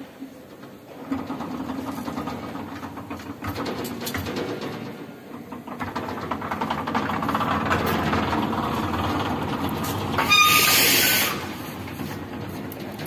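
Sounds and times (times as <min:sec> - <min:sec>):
ride cars rumbling clatter: 0:00.0 - 0:13.0
loud hiss: 0:10.2 - 0:11.7.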